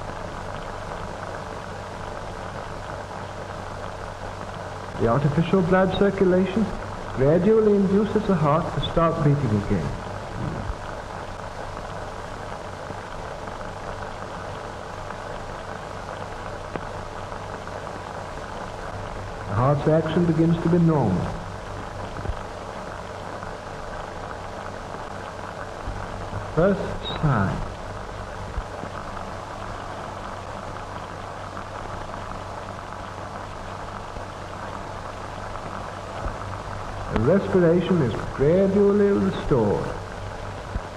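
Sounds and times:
film soundtrack hiss and crackle: 0.0s - 40.9s
low hum: 0.0s - 40.9s.

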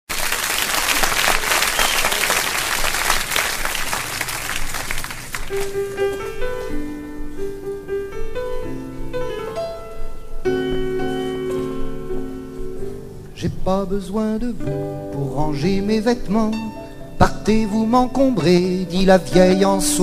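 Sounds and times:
audience applauding: 0.1s - 6.2s
piano playing melody and chords: 5.5s - 20.0s.

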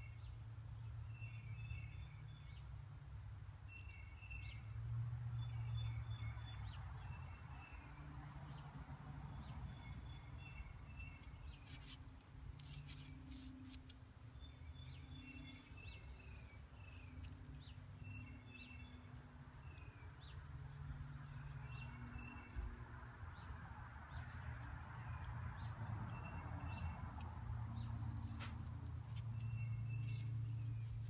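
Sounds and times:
small birds chirping: 3.6s - 4.7s, 9.3s - 31.0s.

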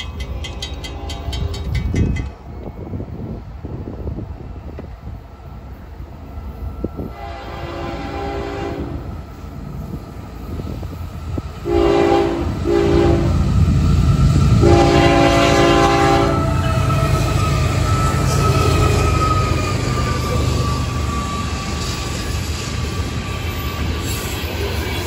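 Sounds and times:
diesel locomotive engines: 0.0s - 25.0s
locomotive air horn blasts: 7.1s - 9.0s, 11.6s - 13.4s, 14.6s - 22.0s.

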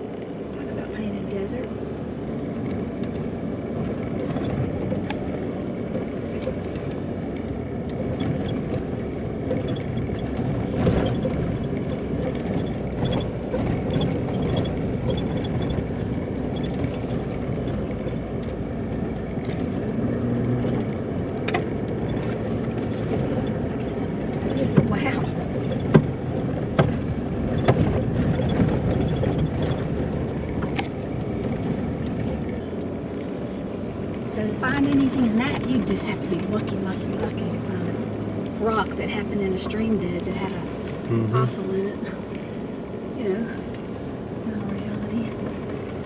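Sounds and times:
tyres and engine rumbling on gravel: 0.0s - 46.0s.

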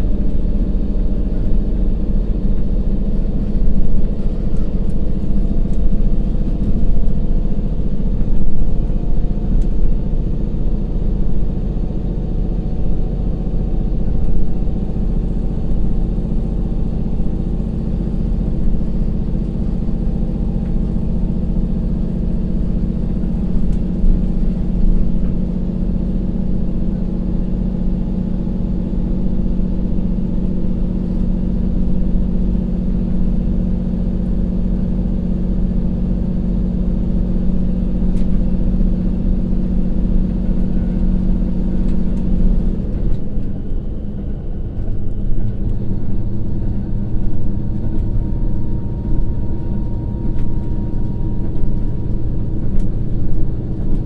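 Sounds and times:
railcar diesel engine droning: 0.0s - 54.0s.

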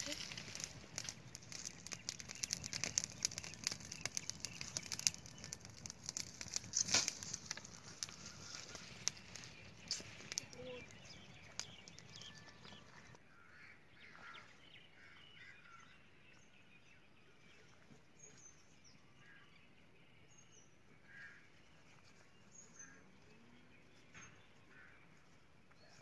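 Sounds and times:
faint bird chirps: 8.1s - 26.0s.

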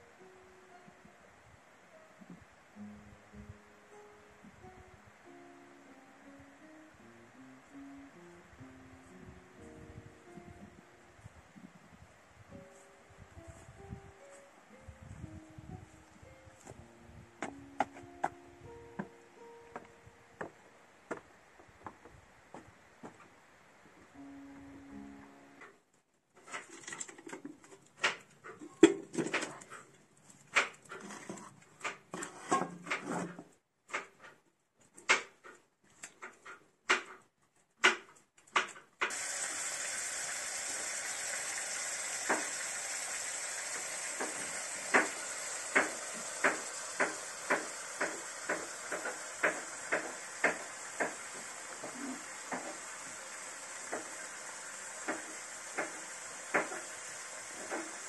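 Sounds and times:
onions sizzling in pan: 39.1s - 58.0s.

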